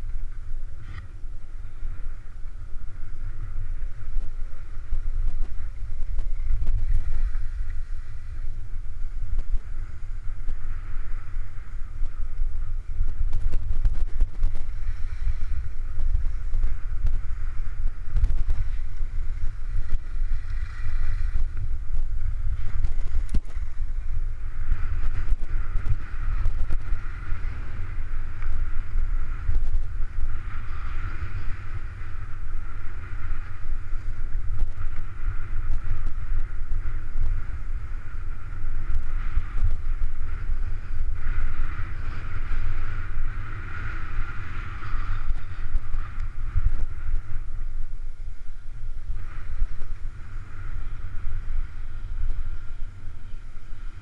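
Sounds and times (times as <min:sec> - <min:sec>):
skis sliding on snow: 0:00.0 - 0:47.9, 0:48.5 - 0:54.0
wind buffeting microphone: 0:00.0 - 0:54.0.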